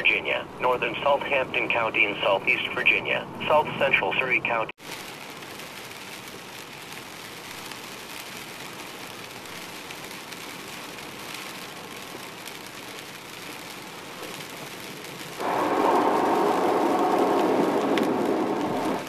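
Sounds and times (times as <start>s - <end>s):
heavy rain on car: 4.8s - 19.0s
tyres hissing on wet road: 4.8s - 19.0s
low rumble: 15.4s - 19.0s.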